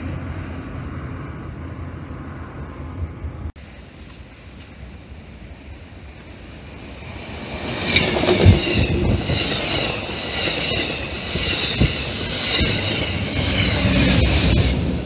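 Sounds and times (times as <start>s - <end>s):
diesel locomotive passing: 0.0s - 15.0s
train wheels clacking on rails: 7.0s - 15.0s
high wheel squeal: 7.4s - 15.0s.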